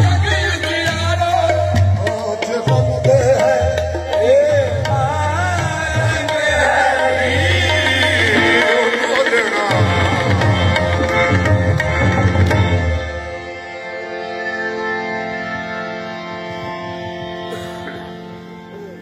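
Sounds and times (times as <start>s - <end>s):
tabla drumming: 0.0s - 13.5s.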